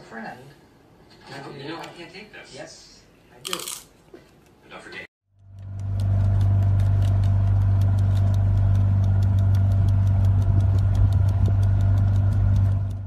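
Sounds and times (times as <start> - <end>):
motorboat engine humming: 5.3 - 13.0
fast regular ticking: 5.4 - 13.0.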